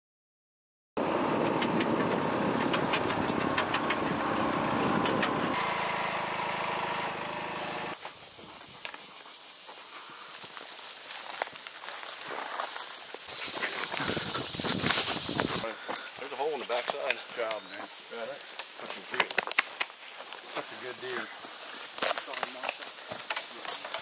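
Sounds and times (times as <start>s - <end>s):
utility vehicle engine running: 1.0s - 8.0s
high-pitched insect drone: 5.5s - 24.0s
plants brushing against vehicle: 10.9s - 24.0s.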